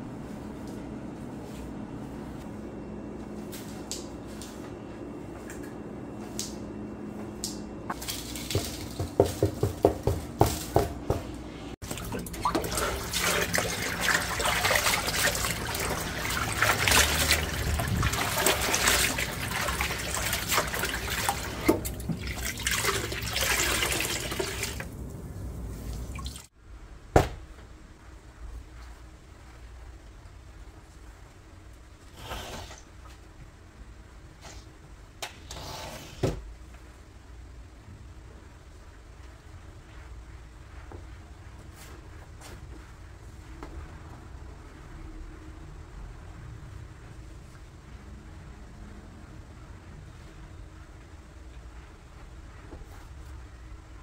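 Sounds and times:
tap water running into basin: 11.8s - 25.0s, 25.8s - 26.5s
rag rubbed and squeezed in water: 11.9s - 24.9s.

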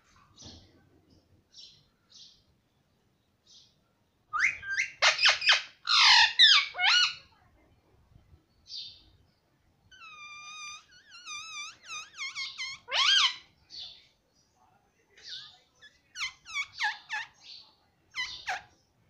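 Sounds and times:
parakeet chirping and squawking: 4.4s - 7.2s, 9.9s - 13.5s, 15.8s - 17.4s, 18.1s - 18.7s.

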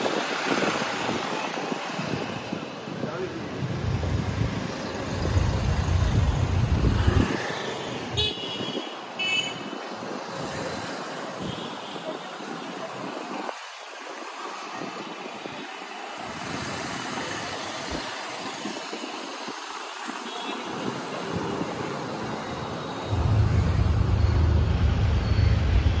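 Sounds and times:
road noise inside car: 22.9s - 26.0s
loud low rumble: 23.1s - 26.0s.

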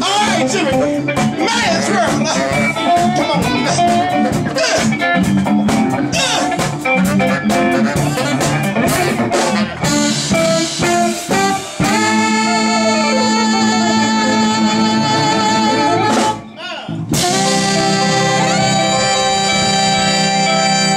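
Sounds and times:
drum kit: 0.0s - 20.9s
electric guitar: 0.0s - 20.9s
saxophone: 0.4s - 20.9s.

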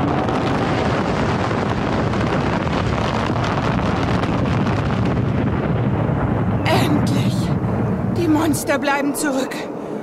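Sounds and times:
deep rumble: 0.0s - 10.0s
rushing storm wind: 0.0s - 10.0s.

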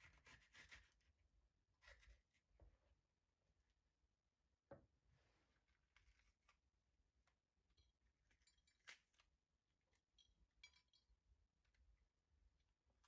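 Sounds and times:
clinks of small hard objects: 10.0s - 11.2s.

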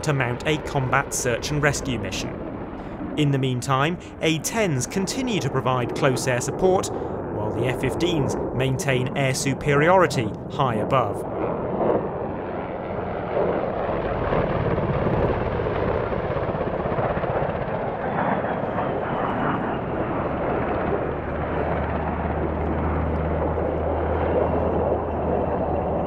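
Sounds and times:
steady low drone: 0.0s - 14.5s
jet flying past whining: 0.0s - 15.4s.

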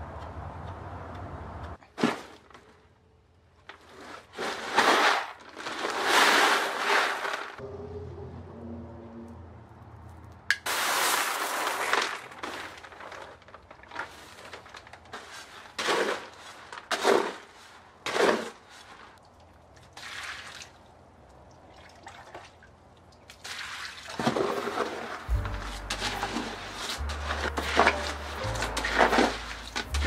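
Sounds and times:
hoe scraping gravel mix: 3.7s - 7.6s, 10.7s - 19.2s, 24.2s - 30.0s
powder pouring onto gravel: 4.4s - 7.6s, 10.7s - 16.7s.

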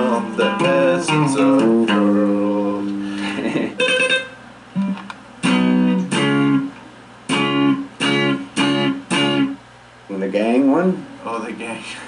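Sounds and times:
electric guitar strummed chords: 0.0s - 9.6s.

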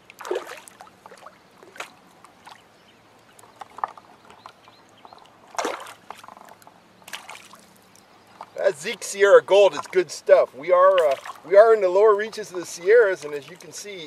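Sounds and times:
fish splashing in water: 0.0s - 2.6s, 5.4s - 7.9s.

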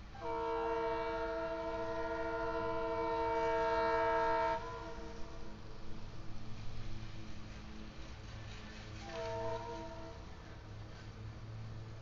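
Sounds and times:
locomotive air horn: 0.1s - 5.6s, 9.0s - 10.4s.

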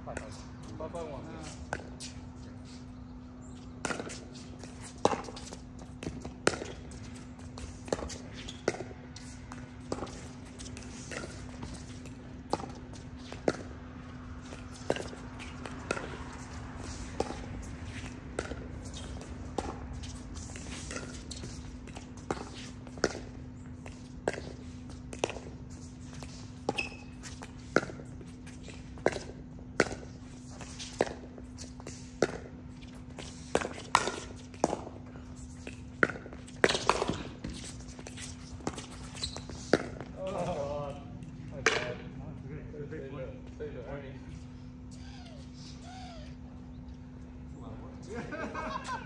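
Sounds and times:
steady low hum: 0.0s - 49.0s
paddles hitting plastic ball: 33.2s - 40.4s.

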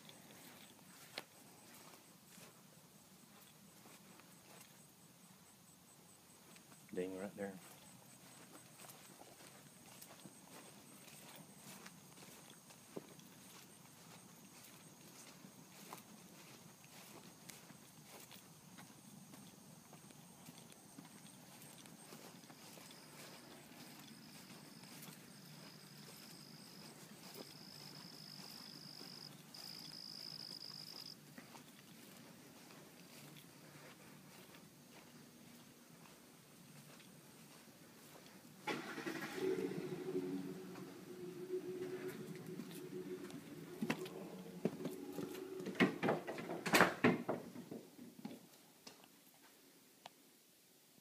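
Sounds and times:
insect trilling: 20.4s - 31.2s, 39.4s - 46.2s
door clicks and knocks: 45.7s - 47.6s.

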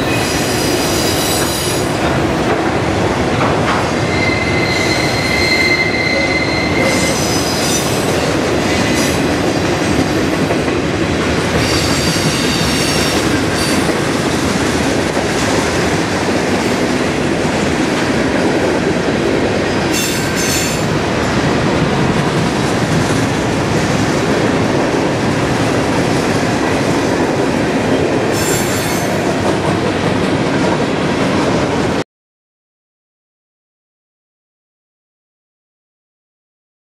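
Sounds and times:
train wheels rumbling on rail: 0.0s - 32.0s
wheel squeal: 4.1s - 8.0s.

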